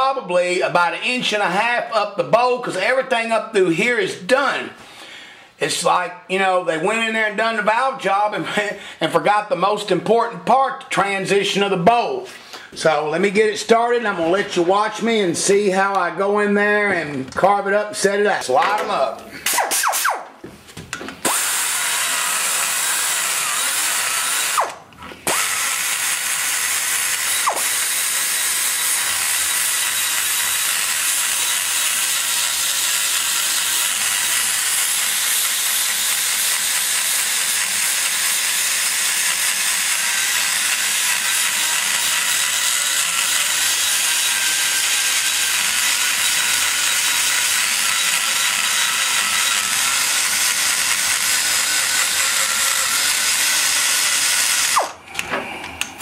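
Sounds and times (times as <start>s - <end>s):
die grinder cutting metal: 21.2s - 55.2s.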